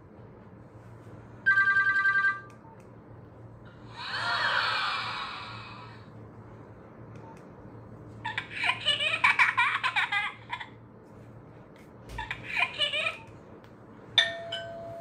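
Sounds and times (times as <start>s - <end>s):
electronic phone ringtone: 1.5s - 2.5s
held steady tone: 14.2s - 15.0s.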